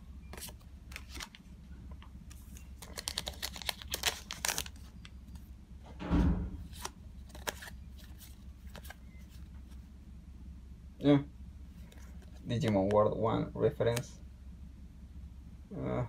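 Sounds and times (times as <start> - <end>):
cards clicking and sliding: 0.3 - 1.4, 2.3 - 4.9, 6.7 - 9.0
foil pack crinkling and tearing: 2.8 - 4.9.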